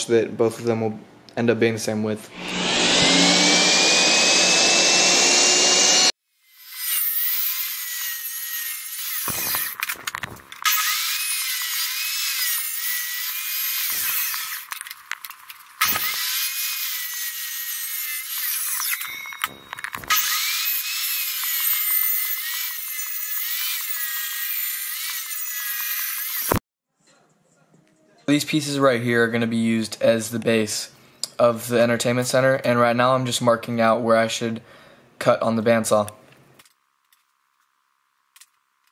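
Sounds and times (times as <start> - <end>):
table saw ripping wood: 2.3 - 26.6.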